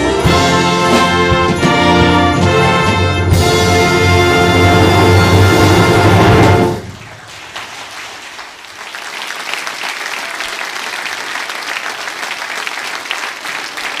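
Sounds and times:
audience applauding: 6.7s - 14.0s.

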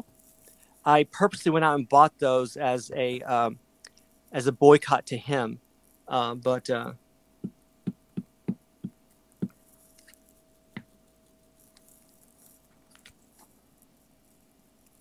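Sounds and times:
faint steady hum: 0.0s - 15.0s
faint ticks: 3.8s - 4.4s, 11.6s - 15.0s.

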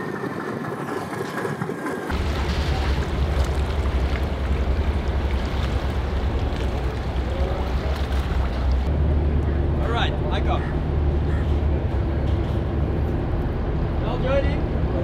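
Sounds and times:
water wash: 0.0s - 8.9s
wind: 0.0s - 15.0s
boat engines rumbling: 2.1s - 15.0s.

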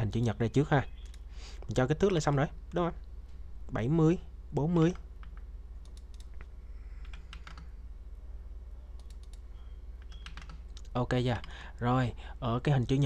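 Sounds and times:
low steady hum: 0.0s - 13.0s
keyboard typing clicks: 1.0s - 1.3s, 4.9s - 7.7s, 8.9s - 11.6s.

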